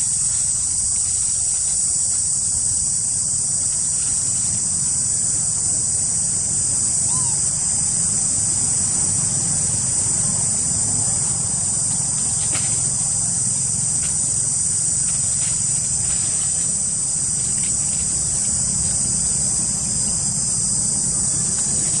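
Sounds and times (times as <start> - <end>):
high-pitched insect chorus: 0.0 - 22.0.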